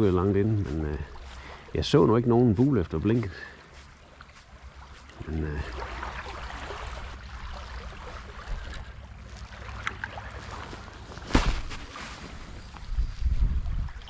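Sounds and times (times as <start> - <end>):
small waves lapping: 0.0 - 14.0
wind rumbling on microphone: 10.6 - 14.0.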